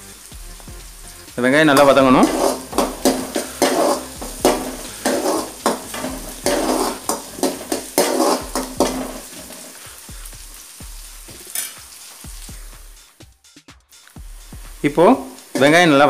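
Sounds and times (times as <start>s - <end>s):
onions sizzling in hot oil: 0.0s - 13.2s, 13.9s - 16.0s
metal ladle scraping a pan: 1.7s - 10.0s, 11.3s - 11.8s, 15.1s - 16.0s.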